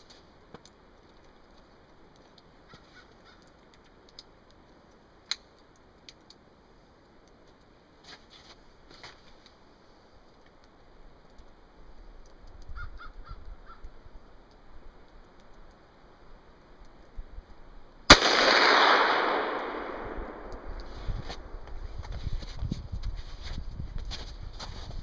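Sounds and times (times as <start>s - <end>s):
distant calls: 2.6s - 3.6s.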